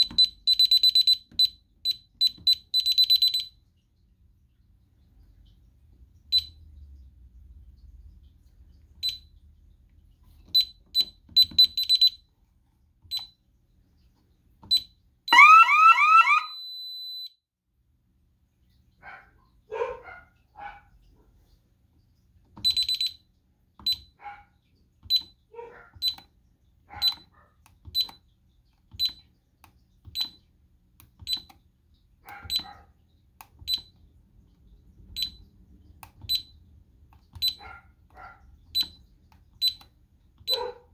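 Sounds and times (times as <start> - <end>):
alarm keypad beeping: 0.0 - 3.5, 10.6 - 12.2, 14.7 - 17.4, 22.7 - 23.2, 37.4 - 37.6, 38.8 - 39.0
siren whooping: 15.3 - 17.1.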